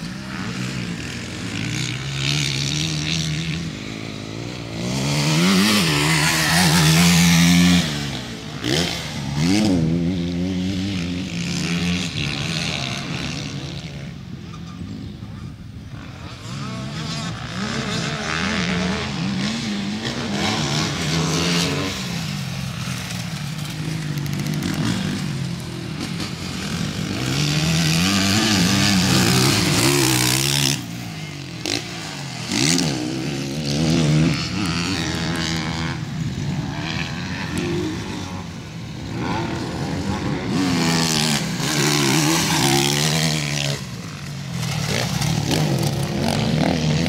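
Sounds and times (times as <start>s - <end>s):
dirt bike engine revving: 0.0s - 14.2s, 15.9s - 47.0s.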